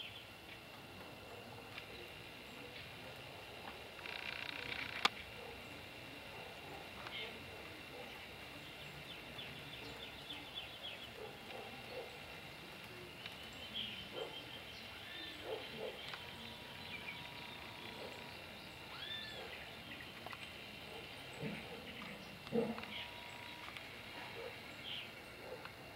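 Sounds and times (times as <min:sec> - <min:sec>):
distant birds calling: 0:00.0 - 0:25.9.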